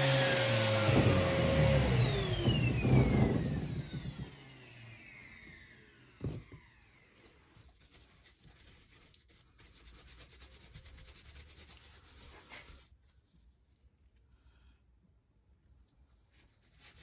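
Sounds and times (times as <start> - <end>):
motor winding down whine: 0.0 - 7.4
paintbrush scrubbing wood: 7.4 - 13.8, 16.1 - 17.0.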